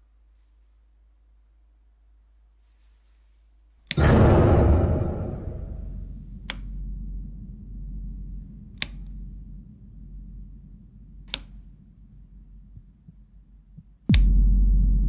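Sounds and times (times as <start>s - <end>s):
low steady drone: 4.0s - 15.0s
light switch clicks: 8.8s - 9.1s, 11.2s - 11.6s.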